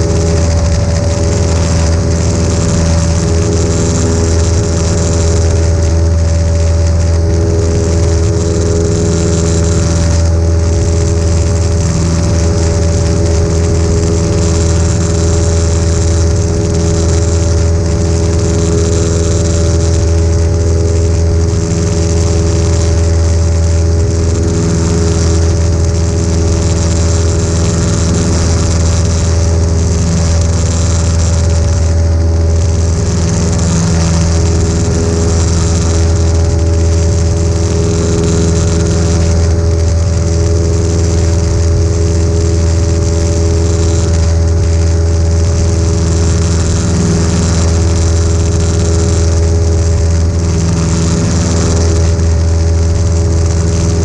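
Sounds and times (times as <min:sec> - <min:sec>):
airplane engine hum in cabin: 0:00.0 - 0:54.0.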